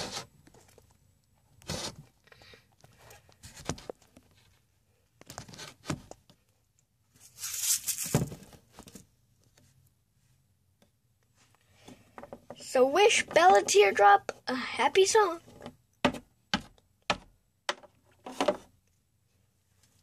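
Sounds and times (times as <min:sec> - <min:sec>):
rustling and scraping: 0:00.0 - 0:06.4, 0:07.1 - 0:10.4.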